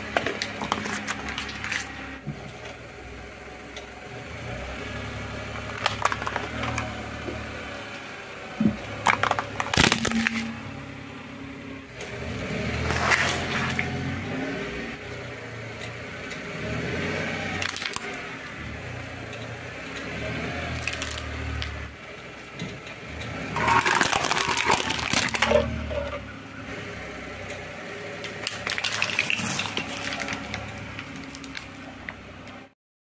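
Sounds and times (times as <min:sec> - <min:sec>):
discs cracking under tyre: 0:00.0 - 0:02.1, 0:05.4 - 0:07.4, 0:08.6 - 0:10.8, 0:12.8 - 0:14.2, 0:17.3 - 0:26.3, 0:28.2 - 0:32.7
car engine running low: 0:00.0 - 0:32.8
cans crushed crunching: 0:05.6 - 0:06.9, 0:09.1 - 0:10.5, 0:20.7 - 0:21.7, 0:23.5 - 0:26.0, 0:28.3 - 0:31.7.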